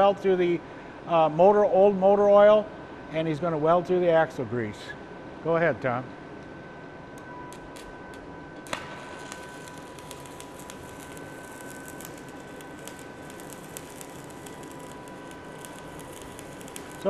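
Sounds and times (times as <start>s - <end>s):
welding arc snaps: 7.2s - 17.0s
welding arc crackling: 7.5s - 17.0s.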